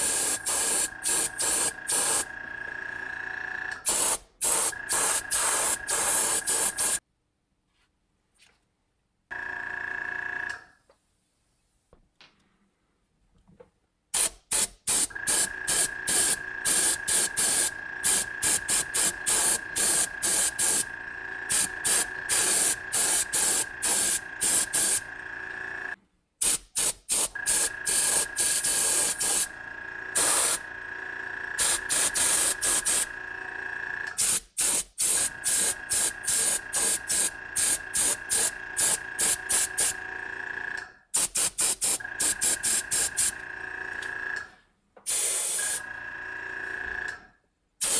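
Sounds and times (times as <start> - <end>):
airbrush spraying hissing bursts: 0.0 - 2.3, 3.8 - 7.0, 14.2 - 20.9, 21.5 - 25.1, 26.4 - 29.5, 30.2 - 30.6, 31.6 - 33.1, 34.2 - 39.9, 41.2 - 43.3, 45.1 - 45.8.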